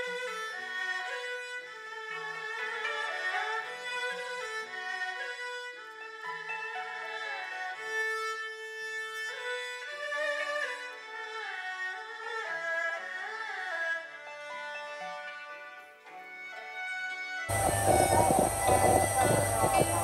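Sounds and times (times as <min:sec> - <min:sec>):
instrumental music with sliding notes: 0:13.9 - 0:20.0.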